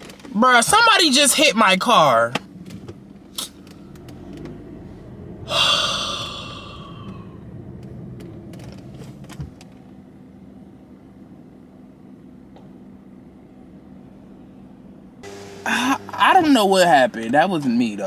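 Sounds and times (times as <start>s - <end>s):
low steady hum inside car: 0.0s - 18.0s
man exhaling in dismay: 5.5s - 7.4s.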